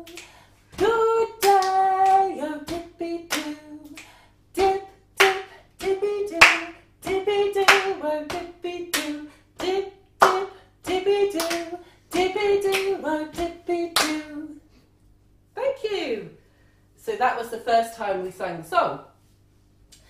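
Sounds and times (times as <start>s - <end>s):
hand claps and leg pats: 0.0s - 14.4s
woman singing: 0.0s - 14.6s.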